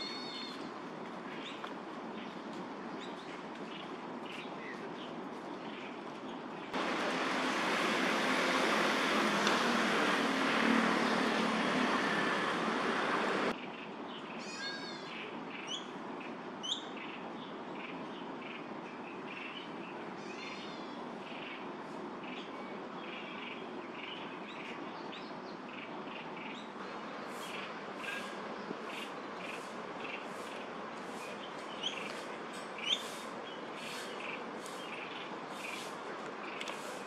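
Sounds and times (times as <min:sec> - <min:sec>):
loud rushing noise: 0:06.8 - 0:13.5
bird chirps: 0:32.8 - 0:35.8
sharp bird calls: 0:32.8 - 0:35.9.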